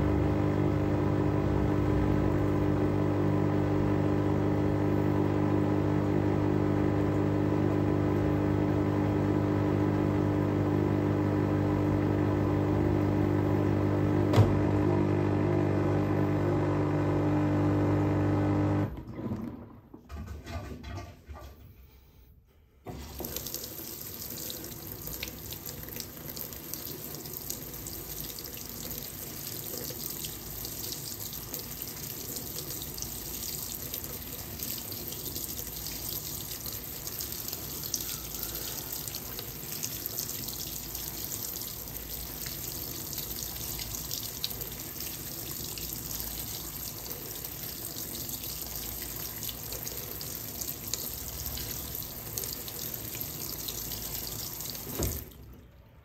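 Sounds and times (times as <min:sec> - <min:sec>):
water pouring into washing machine: 0:22.9 - 0:56.0.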